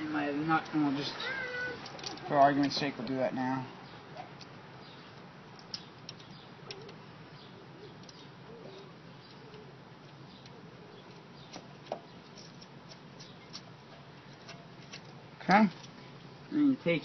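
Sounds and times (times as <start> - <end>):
small metallic clicks and taps: 1.8 - 3.2, 5.5 - 7.0.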